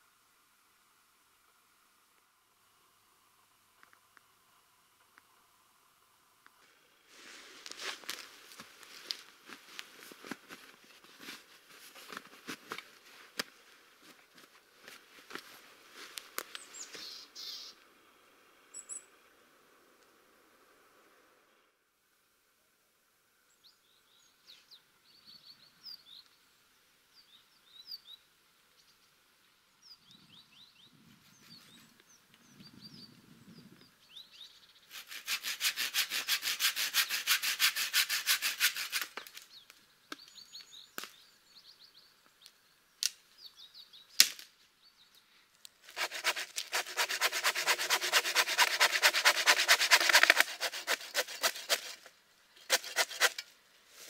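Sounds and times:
small birds chirping: 0:16.4 - 0:17.8, 0:27.1 - 0:34.9, 0:39.2 - 0:44.2
hand saw cutting wood: 0:34.9 - 0:39.4, 0:45.9 - 0:53.5.

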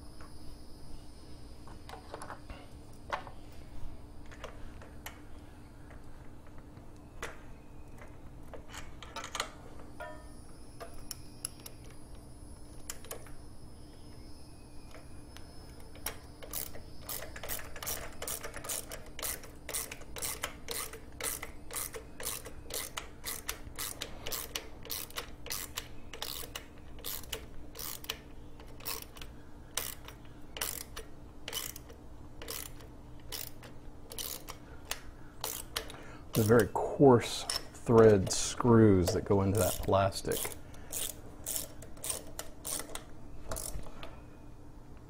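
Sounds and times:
faint steady hum: 0:00.0 - 0:45.0
hand ratchet clicking: 0:15.9 - 0:36.8, 0:37.4 - 0:43.9.

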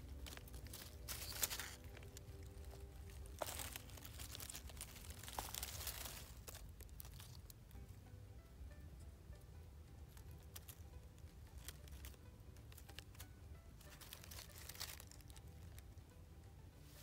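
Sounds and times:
dry leaves rustling and crackling: 0:00.0 - 0:07.6, 0:10.1 - 0:10.8, 0:11.5 - 0:15.8
low steady rumble: 0:00.0 - 0:17.0.

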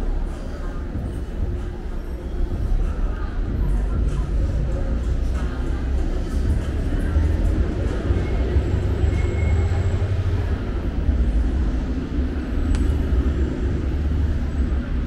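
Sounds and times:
city street rumble: 0:00.0 - 0:15.0
faint click: 0:12.7 - 0:13.0.

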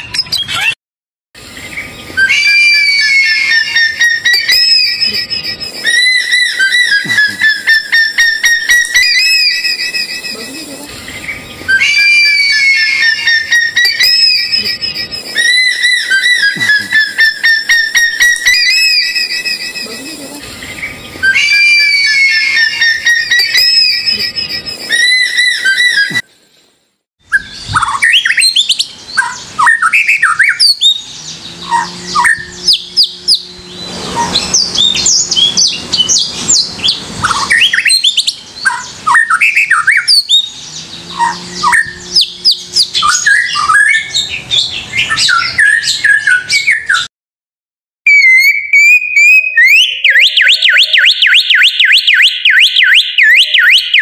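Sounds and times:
songbird singing: 0:01.4 - 0:26.7, 0:27.3 - 0:47.1, 0:48.1 - 0:54.0
clear whistled notes: 0:02.2 - 0:10.8, 0:11.7 - 0:20.4, 0:21.2 - 0:26.3, 0:48.1 - 0:50.8.

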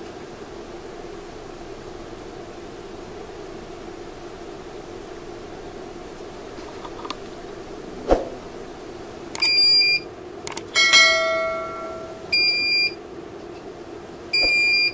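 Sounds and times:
steady low hum: 0:00.0 - 0:14.9
light clicks: 0:09.3 - 0:09.5, 0:10.4 - 0:10.7
sharp click: 0:09.3 - 0:09.6, 0:10.4 - 0:10.8
bell-like chime: 0:10.8 - 0:12.2.

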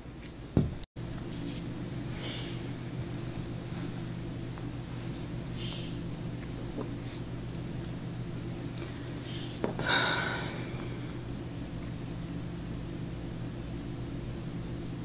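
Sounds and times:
low room hum: 0:00.0 - 0:15.0
person breathing in: 0:02.0 - 0:02.8, 0:08.8 - 0:11.2.

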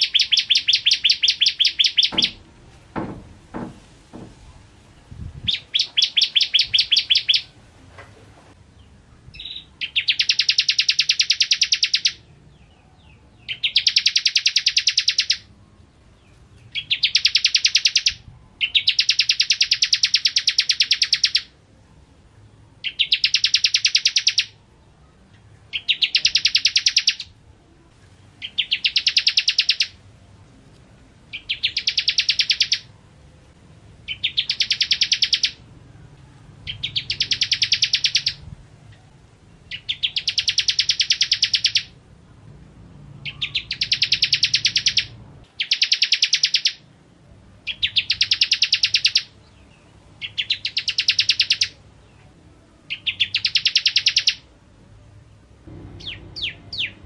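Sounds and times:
songbird trilling: 0:00.0 - 0:02.4, 0:05.0 - 0:07.6, 0:08.8 - 0:15.5, 0:16.2 - 0:21.5, 0:22.8 - 0:24.6, 0:25.7 - 0:27.4, 0:28.4 - 0:30.0, 0:31.3 - 0:33.0, 0:34.1 - 0:35.7, 0:36.7 - 0:42.0, 0:43.2 - 0:46.9, 0:47.6 - 0:52.3, 0:52.9 - 0:54.5, 0:56.0 - 0:57.0.

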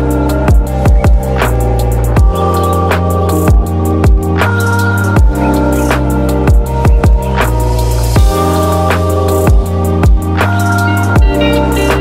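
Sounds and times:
electronic music: 0:00.0 - 0:12.0
deep kick drum: 0:00.5 - 0:01.4, 0:02.2 - 0:02.4, 0:03.5 - 0:04.4, 0:05.2 - 0:05.4, 0:06.5 - 0:07.4, 0:08.2 - 0:08.5, 0:09.5 - 0:10.4, 0:11.2 - 0:11.4.

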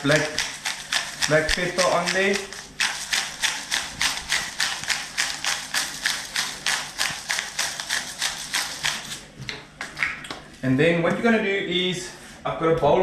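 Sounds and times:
pepper grinder crunching: 0:00.0 - 0:09.3.

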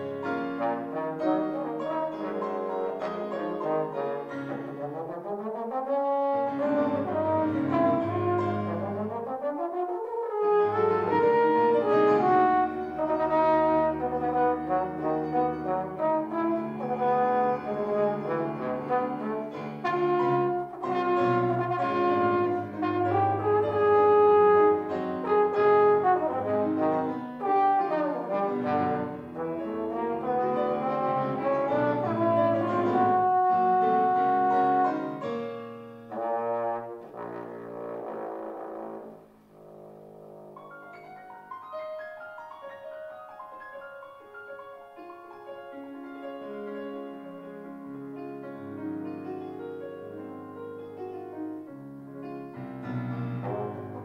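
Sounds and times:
trombone solo: 0:00.0 - 0:40.9, 0:53.4 - 0:54.0
piano accompaniment: 0:00.0 - 0:54.0.

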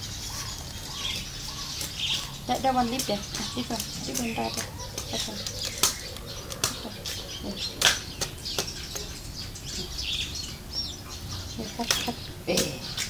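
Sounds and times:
birds chirping: 0:00.0 - 0:13.0
banana leaf snapping: 0:04.6 - 0:06.8.

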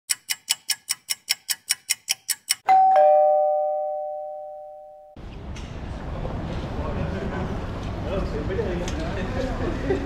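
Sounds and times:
rapid even ticking: 0:00.1 - 0:02.7
two-note ding-dong chime: 0:02.6 - 0:05.2.

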